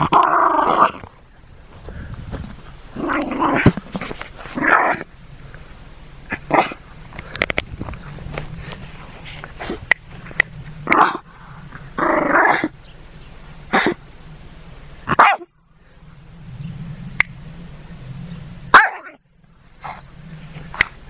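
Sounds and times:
growly dog bark: 0.0 - 1.1, 3.0 - 3.8, 4.5 - 5.1, 6.3 - 6.8, 10.8 - 11.2, 12.0 - 12.7, 13.7 - 14.0, 15.0 - 15.5, 18.7 - 19.2, 19.8 - 20.1
dog barking: 6.3 - 6.8, 15.1 - 15.5, 18.7 - 19.2.

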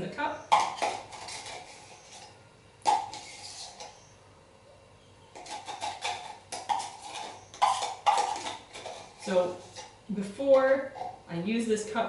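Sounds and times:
metal spoon scraping plastic cup: 0.4 - 4.1, 5.3 - 10.0.

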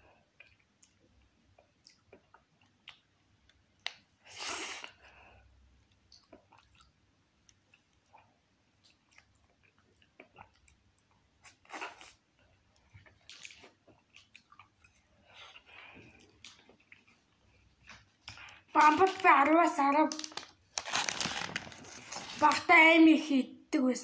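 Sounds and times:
chewing ice cream bar: 5.8 - 19.2.

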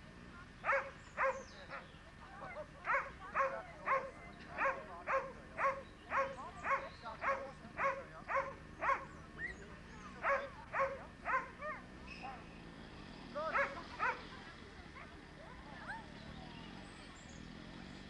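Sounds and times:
dog barking: 0.6 - 1.8, 2.8 - 9.1, 10.2 - 12.4, 13.5 - 14.3.

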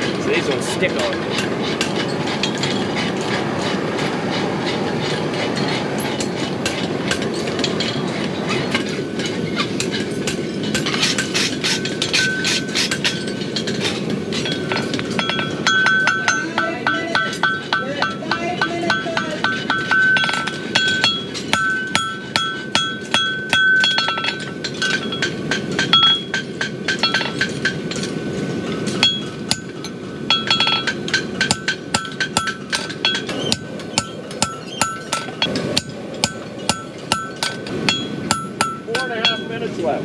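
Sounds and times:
anvil ringing: 11.7 - 28.1, 29.0 - 39.7
hammer striking on anvil: 14.4 - 28.1, 29.0 - 39.6.

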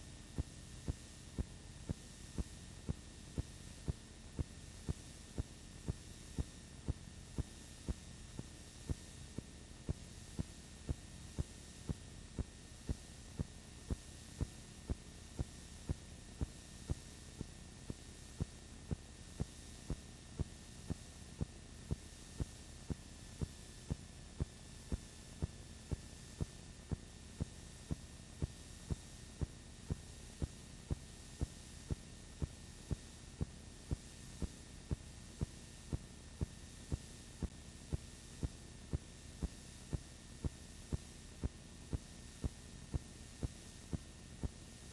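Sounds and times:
steady low hum and hiss: 0.0 - 44.9.

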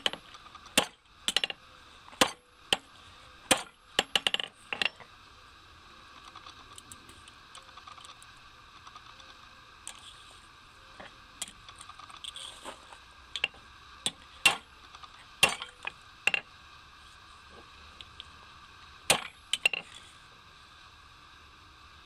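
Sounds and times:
metal clinking on anvil: 15.4 - 16.4.

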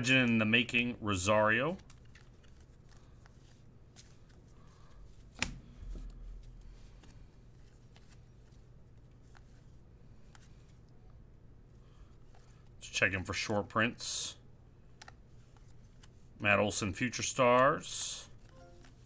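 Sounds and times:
cards flicking and sliding: 1.7 - 9.6.

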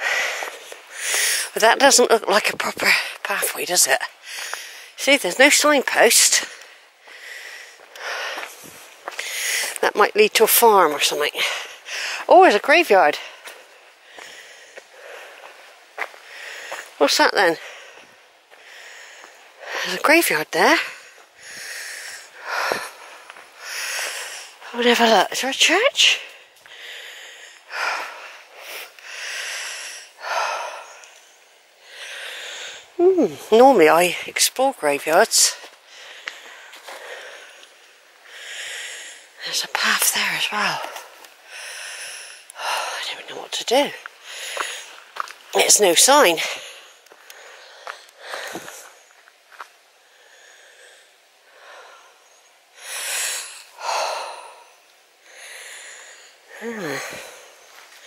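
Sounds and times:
person breathing hard: 6.5 - 9.8, 14.0 - 15.6, 17.6 - 20.0, 26.3 - 33.0, 35.8 - 39.4, 40.8 - 43.0, 46.4 - 48.9, 50.0 - 57.8.

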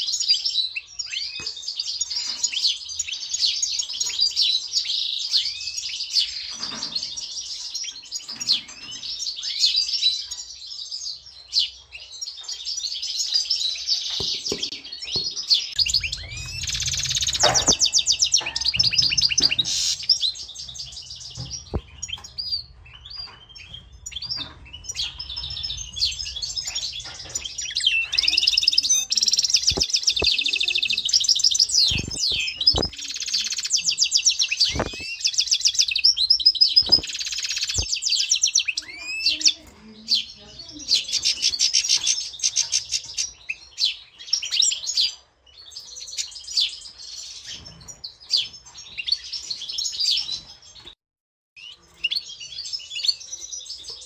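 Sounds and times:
goldfinch twittering song: 0.0 - 39.6.

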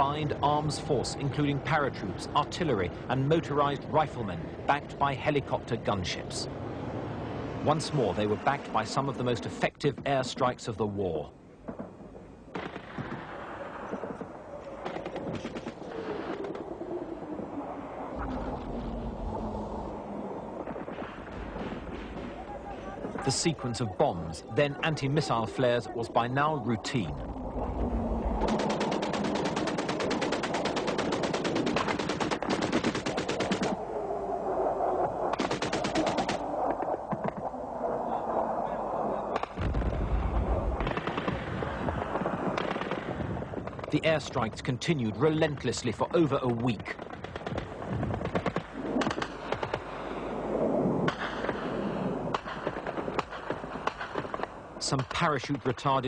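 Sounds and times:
gunfire pops and bangs: 11.6 - 16.7, 28.4 - 33.8, 35.3 - 37.5, 39.4 - 40.1, 40.8 - 44.7, 45.4 - 50.0, 51.0 - 55.9
explosions: 11.6 - 23.7, 26.9 - 33.8, 34.7 - 44.5
rushing noise: 15.9 - 30.1
automatic gunfire: 28.4 - 33.8, 35.4 - 36.4, 40.8 - 43.2.

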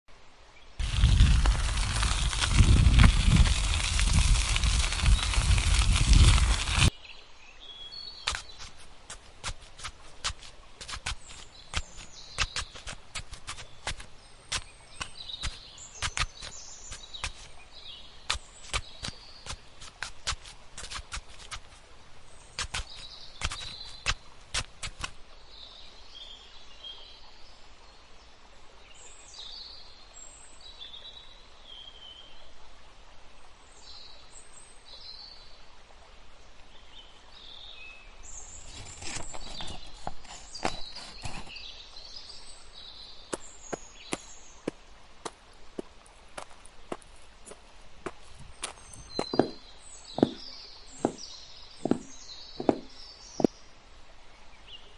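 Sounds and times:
steady background hiss: 0.1 - 0.9, 41.5 - 54.9
fingers digging in dry soil: 0.8 - 6.9, 8.2 - 21.9, 22.5 - 25.2, 38.6 - 41.7, 43.3 - 53.6
birds chirping: 3.9 - 26.3, 37.0 - 53.8.

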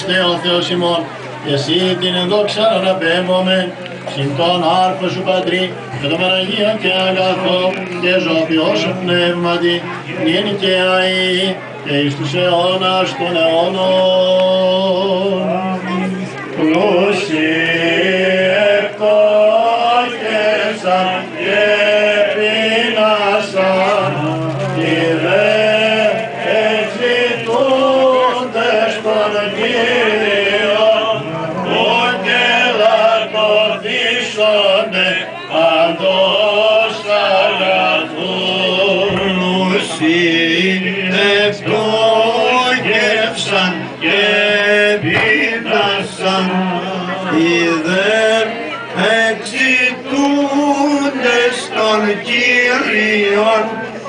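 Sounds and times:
men chanting a melody: 16.6 - 54.0.

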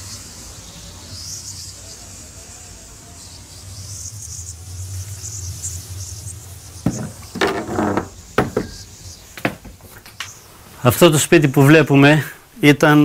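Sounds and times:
knock on wooden door: 6.8 - 8.8
door rattling and scraping open: 6.8 - 10.0.

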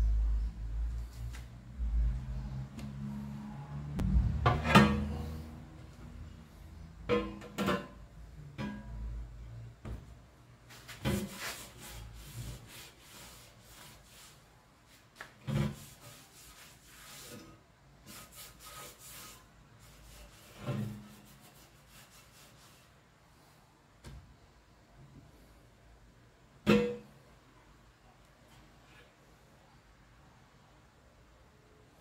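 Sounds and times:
sponge scrubbing metal: 10.7 - 14.5, 15.4 - 23.0.

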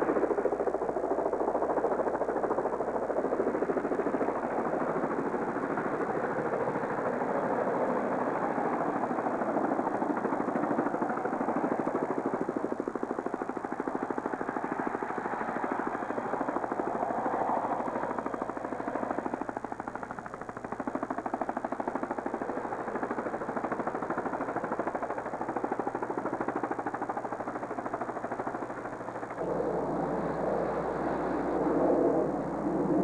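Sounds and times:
pulsing motor drone: 0.0 - 33.0
rough noise with low hum: 0.0 - 33.0.

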